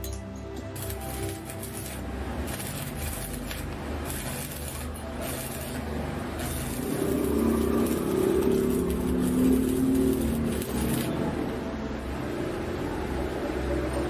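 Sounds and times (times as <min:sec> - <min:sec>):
welding arc crackling and buzzing: 0:00.6 - 0:11.6.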